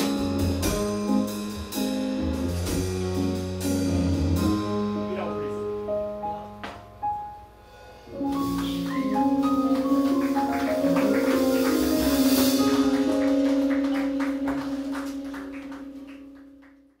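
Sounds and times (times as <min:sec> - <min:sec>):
jazz band holding chord: 0:00.0 - 0:17.0
sustained keyboard chords: 0:08.1 - 0:17.0.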